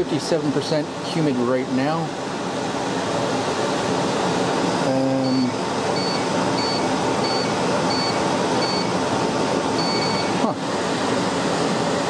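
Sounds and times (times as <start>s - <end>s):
dehumidifier fan running: 0.0s - 12.0s
short electronic beeps: 5.2s - 8.9s, 9.8s - 10.4s.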